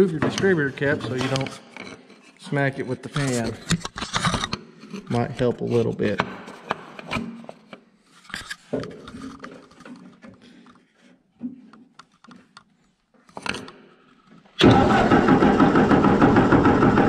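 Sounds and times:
engine cranking without firing: 0:14.6 - 0:17.0.

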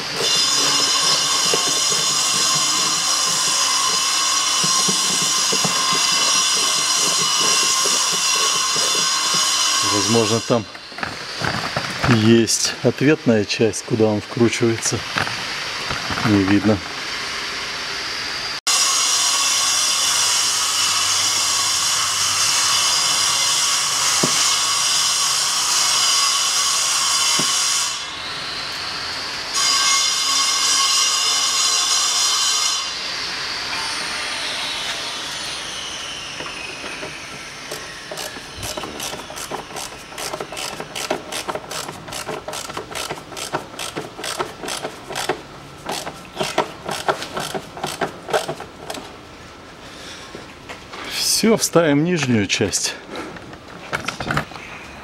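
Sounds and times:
machine high whine: 0:00.0 - 0:14.2, 0:21.1 - 0:45.3.

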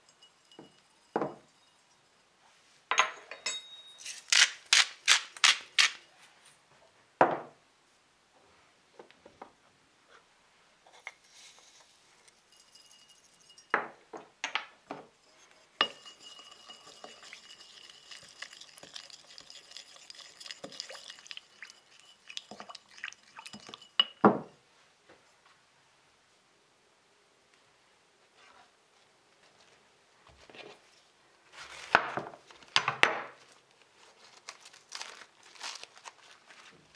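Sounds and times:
glass bowl ringing: 0:00.0 - 0:02.2, 0:02.9 - 0:04.0, 0:12.5 - 0:13.8, 0:15.8 - 0:19.8, 0:20.7 - 0:24.2
spoon scraping a glass bowl: 0:00.0 - 0:02.2, 0:11.4 - 0:13.7, 0:15.2 - 0:24.2.

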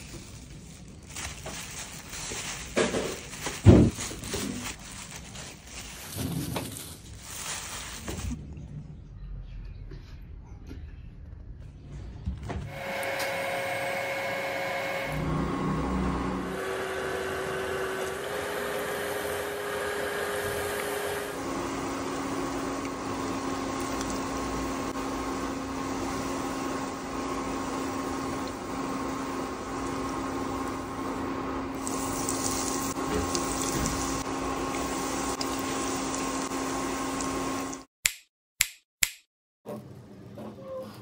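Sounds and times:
oil sizzling: 0:17.7 - 0:37.9.

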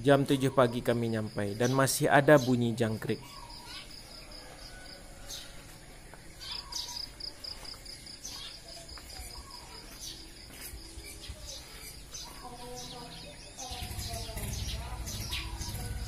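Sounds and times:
birds chirping and calling: 0:00.0 - 0:16.0
crickets chirping: 0:00.0 - 0:16.0.

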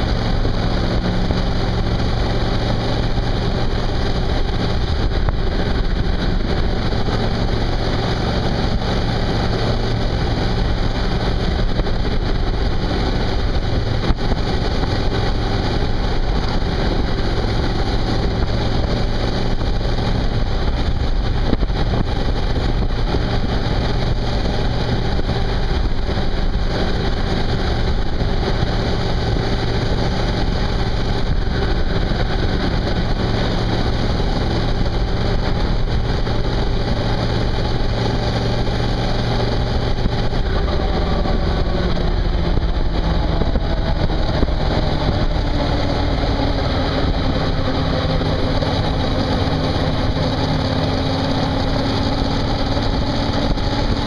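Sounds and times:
motorcycle engine running: 0:00.0 - 0:54.0
rushing wind noise: 0:00.0 - 0:54.0.

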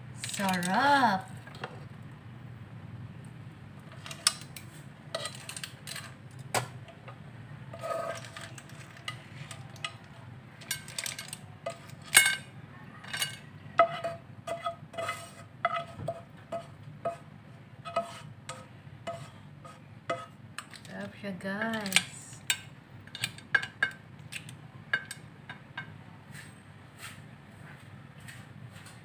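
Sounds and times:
low steady hum: 0:00.0 - 0:26.7
utensil scraping frying pan: 0:03.8 - 0:07.1, 0:07.7 - 0:20.9.

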